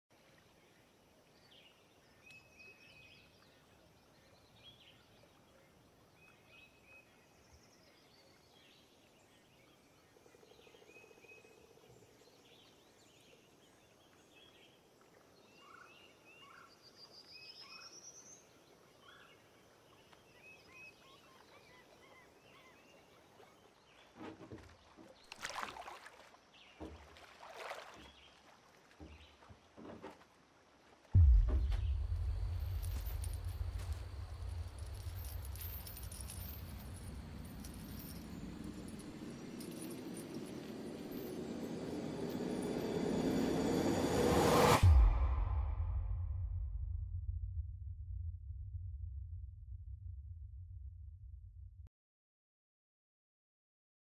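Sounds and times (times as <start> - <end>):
splashes in water: 23.3 - 39.7.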